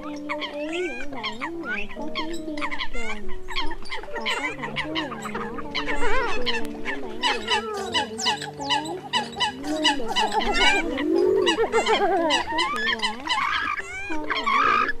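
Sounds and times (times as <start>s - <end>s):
chorus of coots calling: 0.0s - 15.0s.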